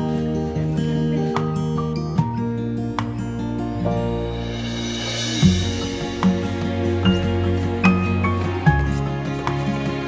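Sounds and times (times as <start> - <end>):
slow instrumental music: 0.0 - 10.0.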